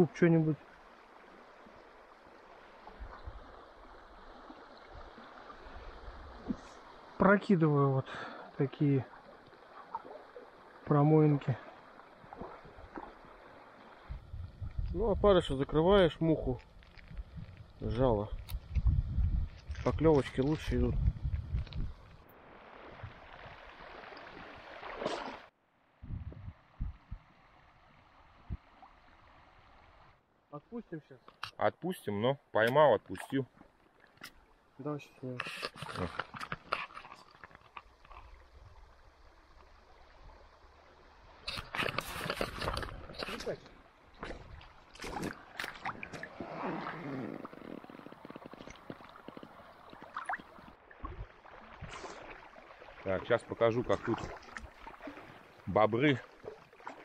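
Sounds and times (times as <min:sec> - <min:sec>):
dull low thumps: 0:26.0 - 0:27.3
faint low bumps: 0:26.0 - 0:27.4.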